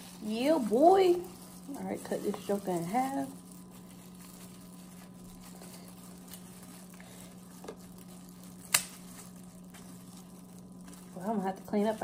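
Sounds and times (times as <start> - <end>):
steady low hum: 0.0 - 12.0
crab shell cracking: 7.6 - 10.9
scissors snipping: 8.6 - 9.0.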